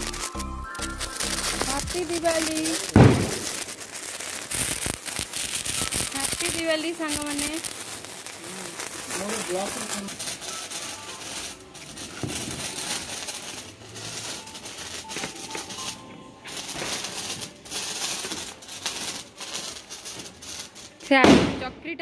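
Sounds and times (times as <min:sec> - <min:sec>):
sparkler crackling: 0:00.0 - 0:22.0.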